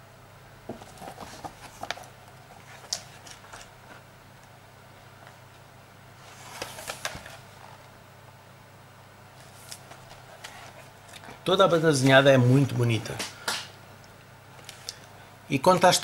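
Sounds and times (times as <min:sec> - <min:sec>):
paper pages rustling: 0:00.7 - 0:04.0, 0:06.2 - 0:07.9, 0:09.4 - 0:12.4.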